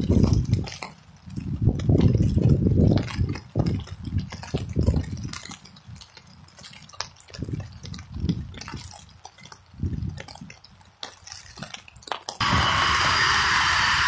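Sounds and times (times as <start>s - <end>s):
wind buffeting microphone: 0.0s - 11.0s
raindrops ticking on microphone: 0.0s - 12.4s.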